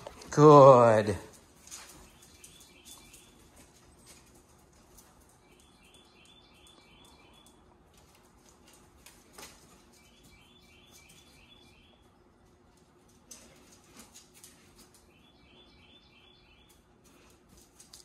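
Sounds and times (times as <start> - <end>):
dog claws clicking on tile: 16.7 - 18.0.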